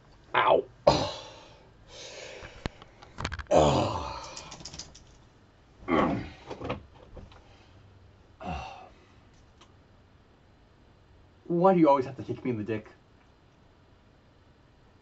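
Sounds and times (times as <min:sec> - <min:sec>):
man groaning in pain: 0:00.4 - 0:01.5, 0:03.4 - 0:04.4, 0:05.9 - 0:06.4, 0:08.4 - 0:08.9
clicks and knocks of movement: 0:02.4 - 0:03.5, 0:04.2 - 0:05.3.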